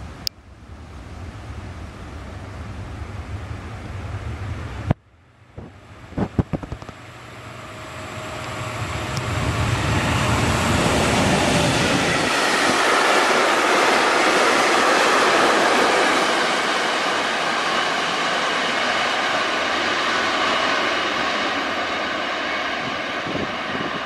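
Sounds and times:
wind rumble on microphone: 0.0 - 7.1, 8.1 - 13.0, 22.8 - 24.0
train wheels on rails: 5.6 - 24.0.

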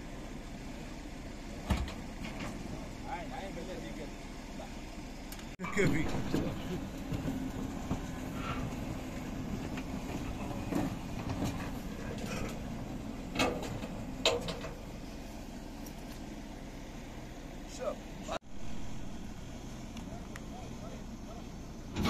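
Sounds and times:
tow truck engine humming: 0.0 - 22.0
metal clanks: 13.3 - 14.8.

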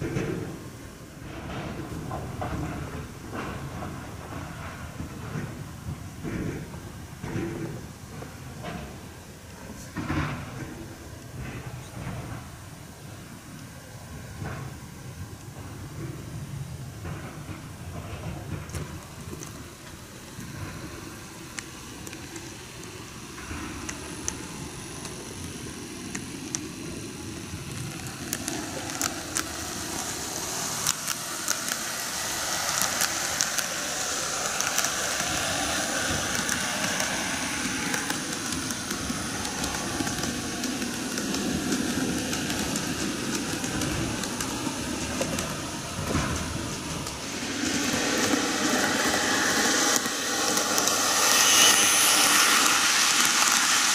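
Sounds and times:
wheels clicking over rail joints: 0.0 - 53.9
small wheels rattling: 15.6 - 53.9
model train motor whirring: 18.4 - 53.9.

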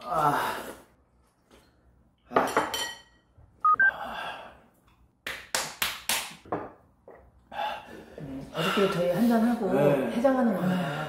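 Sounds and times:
two-note electronic beep: 3.7 - 3.9
sharp slaps on skin: 5.2 - 6.5.

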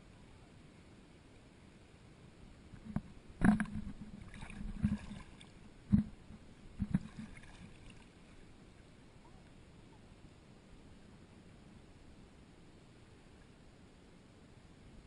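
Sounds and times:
paddle knocking on plastic hull: 2.8 - 5.1, 5.9 - 7.4
paddle splashing in water: 2.8 - 6.2, 6.8 - 8.3.

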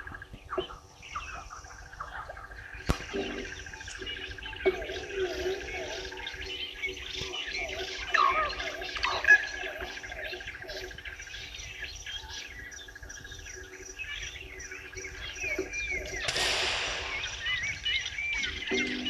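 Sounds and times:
wild birds chirping and calling: 0.0 - 19.0
rush of noise: 16.3 - 18.5
bird's fast even trill: 16.3 - 18.7.

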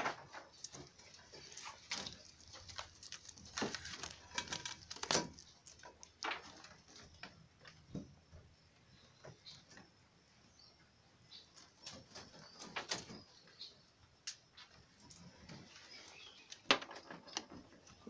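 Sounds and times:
knocks and scratches on wooden hutches: 0.0 - 8.5, 14.6 - 18.0.

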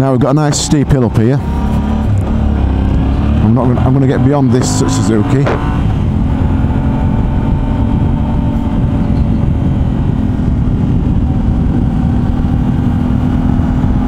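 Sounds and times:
wind rushing on microphone: 0.0 - 14.0
motorcycle engine running: 0.5 - 14.0.

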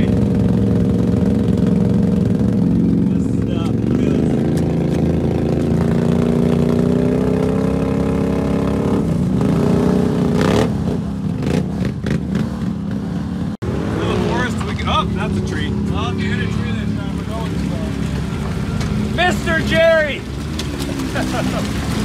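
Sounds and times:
quad engine revving: 0.0 - 22.0
wheels churning in mud: 13.8 - 22.0.

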